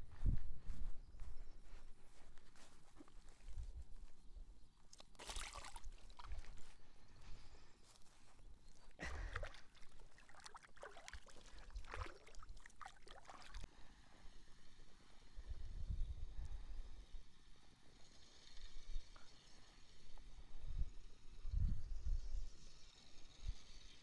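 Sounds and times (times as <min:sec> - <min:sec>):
water splashing and sloshing: 0:04.9 - 0:06.7, 0:09.0 - 0:13.7.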